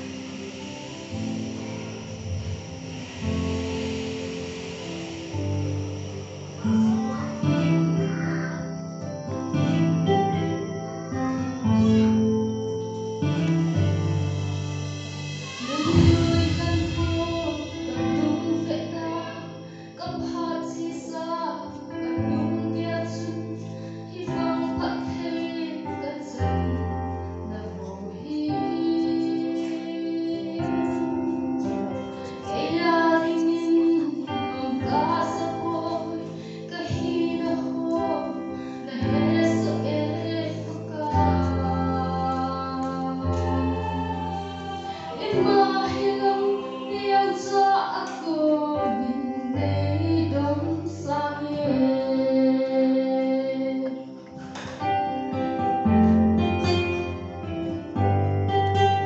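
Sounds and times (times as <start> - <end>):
instrumental accompaniment: 0.0 - 59.0
woman singing into microphone: 15.4 - 54.3.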